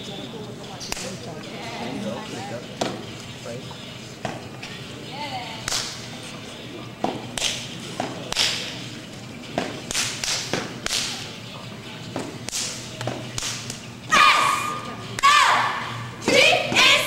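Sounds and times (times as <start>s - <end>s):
hand claps: 0.9s - 1.1s, 5.6s - 6.0s, 7.3s - 8.8s, 9.6s - 11.3s, 12.4s - 13.8s.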